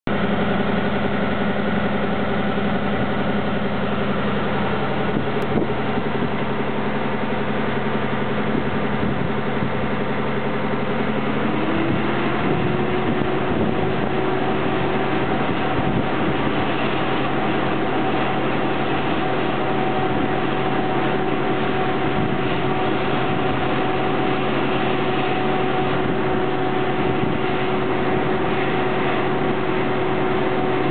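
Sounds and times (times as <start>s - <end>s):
heating unit humming: 0.1s - 30.9s.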